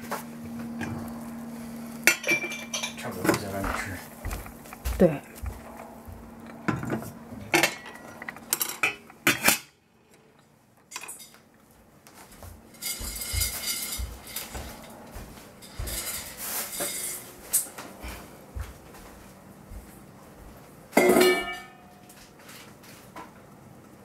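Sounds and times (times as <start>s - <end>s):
metal lid clinking on pot: 21.0s - 21.8s.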